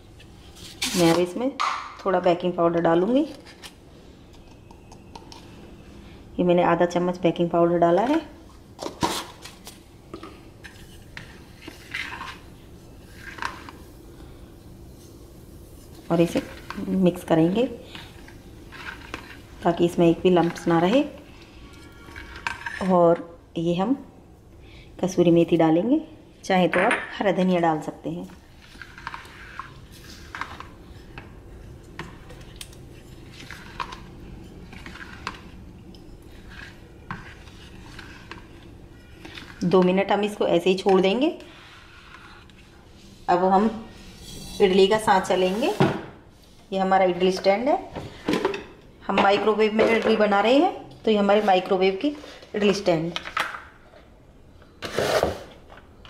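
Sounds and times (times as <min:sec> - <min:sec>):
faint steady hum: 0:00.0 - 0:54.8
ladle stirring thick batter: 0:15.9 - 0:23.0, 0:28.6 - 0:43.1
spoon scraping plastic bowl: 0:33.0 - 0:35.6, 0:36.2 - 0:39.9, 0:41.5 - 0:42.7, 0:54.8 - 0:55.6.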